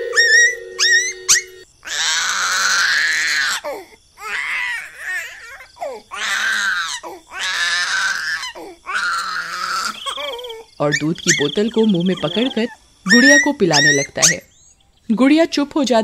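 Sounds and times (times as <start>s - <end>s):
whistle-like notes: 0.0s - 1.6s
infant crying: 0.1s - 10.7s.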